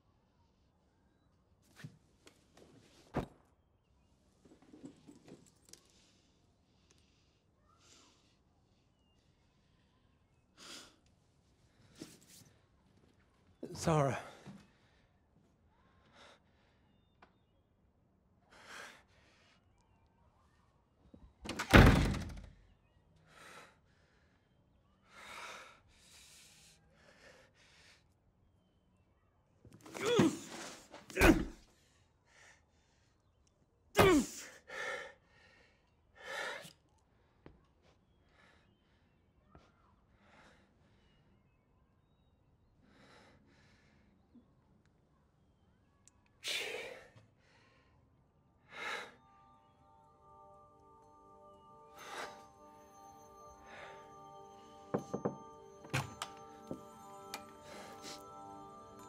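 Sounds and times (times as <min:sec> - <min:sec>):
door slamming shut: 0:21.5 - 0:22.5.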